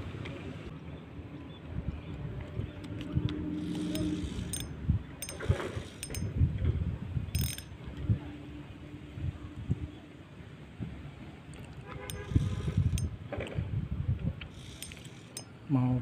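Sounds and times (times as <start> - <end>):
fishing reel gear whir: 3.5 - 6.4, 7.4 - 7.8, 12.1 - 13.1, 14.5 - 15.6
sharp reel clicks: 3.6 - 6.3, 7.4 - 7.8, 12.0 - 13.1, 14.4 - 15.6.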